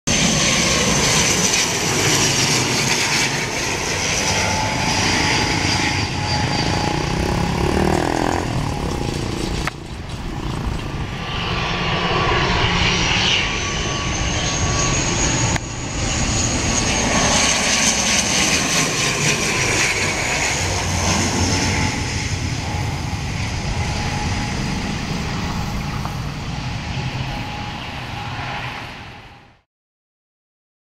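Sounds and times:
turboprop aircraft drone: 0:00.1 - 0:29.7.

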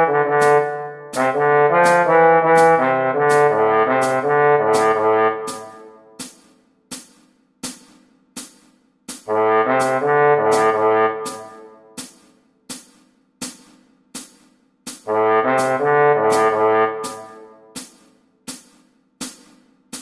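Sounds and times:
slide trombone playing low notes: 0:00.0 - 0:06.2, 0:09.3 - 0:12.0, 0:15.1 - 0:17.8
steady metronome clicks: 0:00.0 - 0:20.0.

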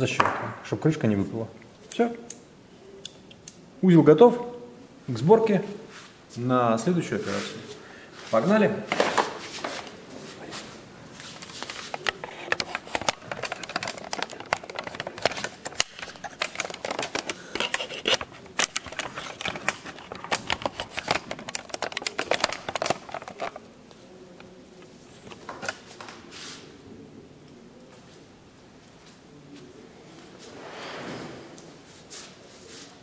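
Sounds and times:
small hard parts clattering: 0:11.5 - 0:23.7.

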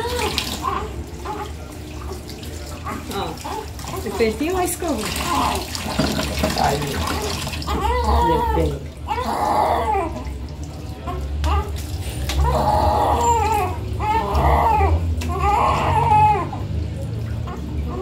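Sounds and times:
baby crying: 0:06.6 - 0:10.3, 0:11.1 - 0:16.6.

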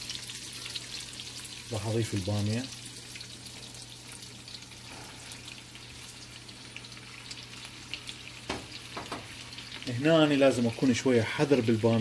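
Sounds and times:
food sizzling in oil: 0:00.0 - 0:12.0
knock: 0:08.5 - 0:09.3.

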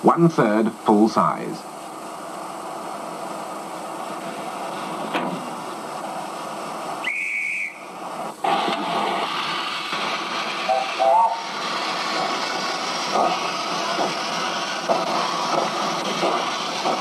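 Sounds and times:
steam hissing: 0:00.0 - 0:17.0
high steam whistle blast: 0:07.0 - 0:12.3.

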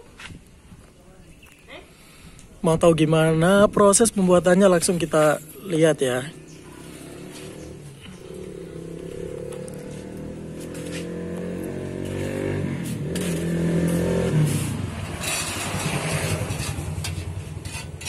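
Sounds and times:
motorcycle passing by: 0:06.0 - 0:18.0.

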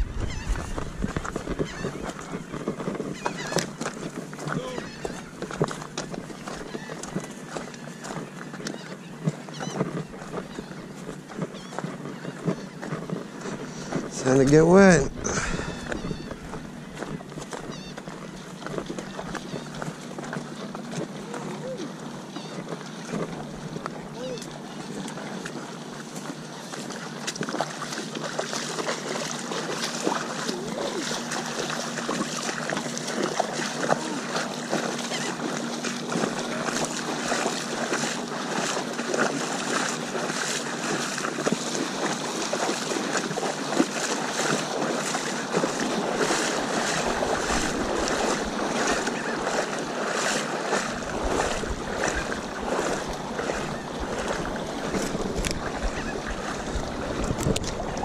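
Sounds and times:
wind rumble on microphone: 0:00.0 - 0:08.9, 0:15.0 - 0:20.0, 0:50.8 - 0:58.0
water splashing around legs: 0:00.0 - 0:58.0.

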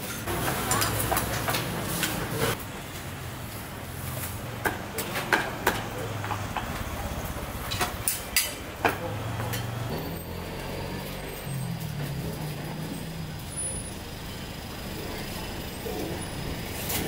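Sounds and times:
murmur of voices: 0:04.4 - 0:17.0.

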